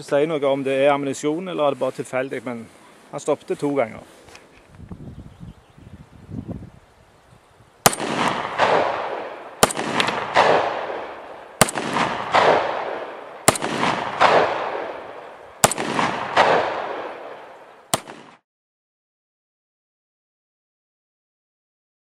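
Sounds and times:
pistol shots with echo: 7.8 - 18.4.

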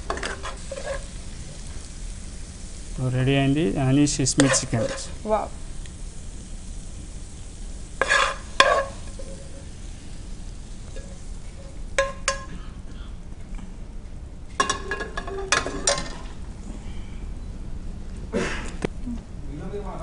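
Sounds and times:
spatula scraping metal wok: 0.0 - 1.2, 4.3 - 5.2, 8.0 - 9.7
steady low hum: 0.0 - 20.0.

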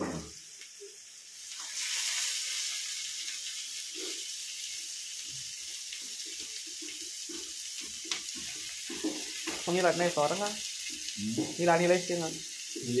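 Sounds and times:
meat sizzling in hot oil: 0.1 - 13.0.

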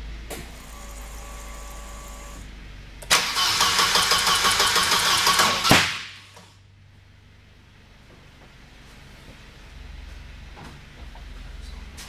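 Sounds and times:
faint hum with high whine: 0.0 - 3.1, 5.5 - 12.0
starter motor cranking engine: 3.0 - 5.7.

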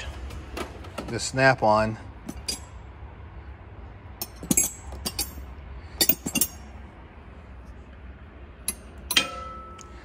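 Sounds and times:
metal wrenches clinking: 2.2 - 2.8, 4.2 - 6.8, 8.6 - 10.0.

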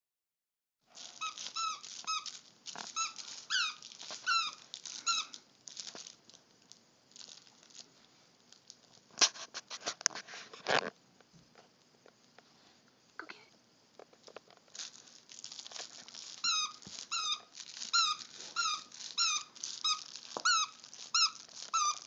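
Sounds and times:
squeaky toy squeaks: 1.0 - 6.0, 16.1 - 22.0.

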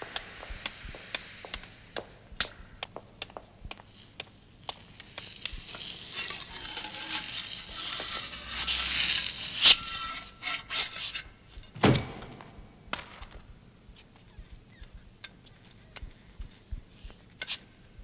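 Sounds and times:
hissing noise: 0.0 - 2.5, 3.9 - 11.2.

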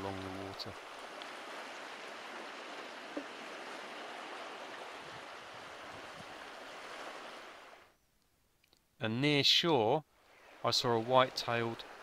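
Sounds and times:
sea waves washing on shore: 0.0 - 7.9, 10.2 - 12.0.

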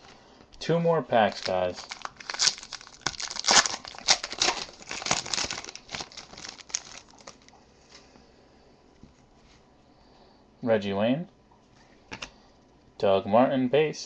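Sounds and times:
foil wrapper tearing and crinkling: 1.2 - 7.6.

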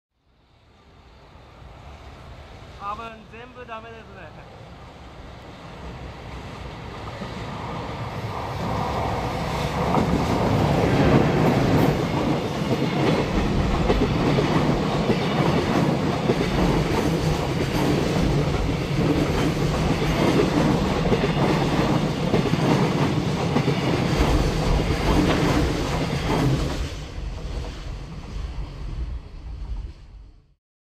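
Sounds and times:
train wheels clattering on rails: 6.9 - 28.2.

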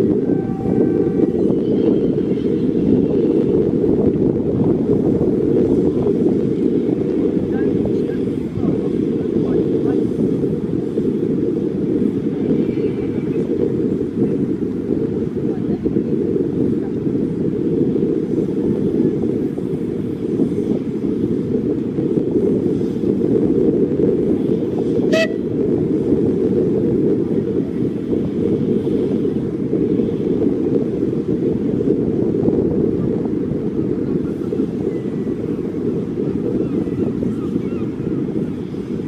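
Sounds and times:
wind buffeting microphone: 0.0 - 39.0
steam locomotive whistle toot: 25.1 - 25.4.

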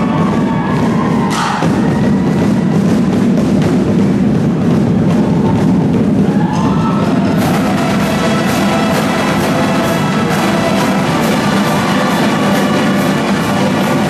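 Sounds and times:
marching drumline playing: 0.0 - 14.0.

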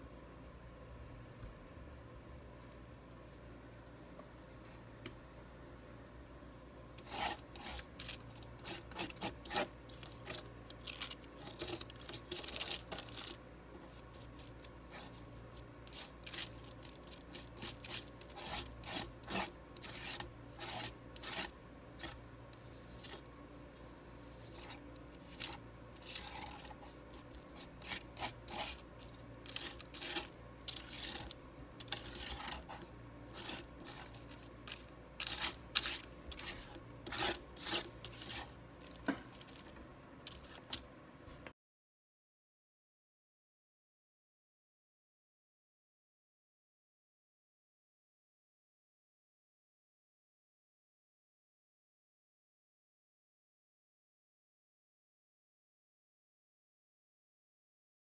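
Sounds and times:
palette knife scraping paint: 6.9 - 23.4, 24.2 - 39.7, 40.3 - 40.8.

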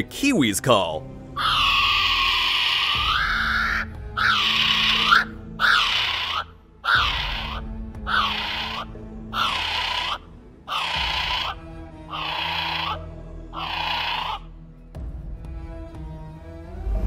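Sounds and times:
kiwi high-pitched calls: 1.4 - 14.5.

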